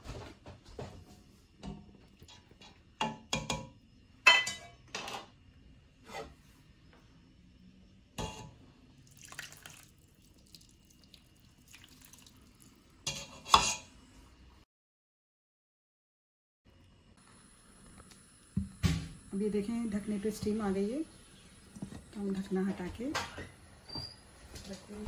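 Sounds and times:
utensils clanking on metal pot: 4.3 - 5.3.

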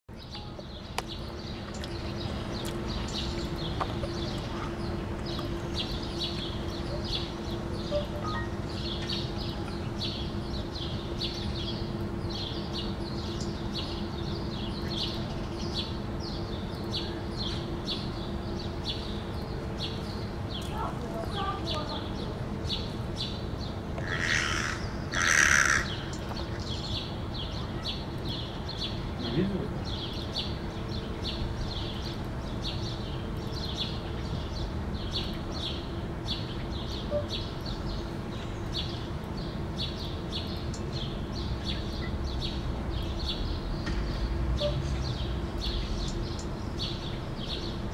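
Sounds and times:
outdoor background noise: 0.1 - 47.9
small birds chirping: 0.1 - 47.9
steady low hum: 0.1 - 47.9
small bird chirping: 0.2 - 18.1
crow cawing: 24.0 - 26.1.

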